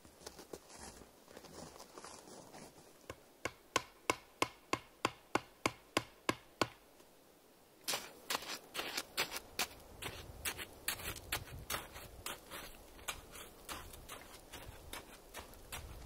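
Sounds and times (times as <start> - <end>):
snow crunching and rustling: 7.8 - 16.0.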